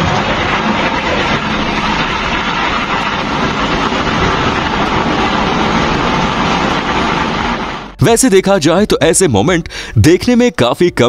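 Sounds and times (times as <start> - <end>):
firecrackers crackling: 0.0 - 8.4.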